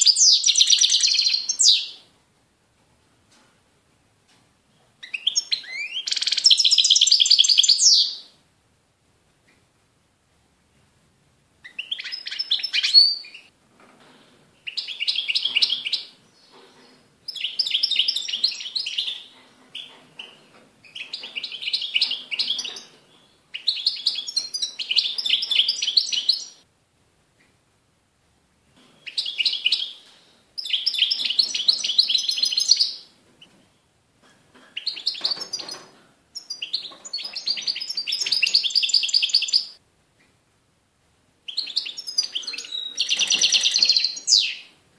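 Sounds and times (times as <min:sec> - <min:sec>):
bird singing high-pitched notes: 0:41.5 - 0:44.7.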